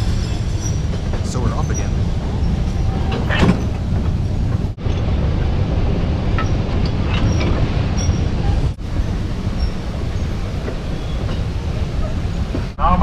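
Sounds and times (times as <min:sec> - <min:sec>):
railroad car rumbling on track: 0:00.0 - 0:13.0
wheels clicking and squeaking: 0:06.4 - 0:08.4, 0:09.5 - 0:12.6.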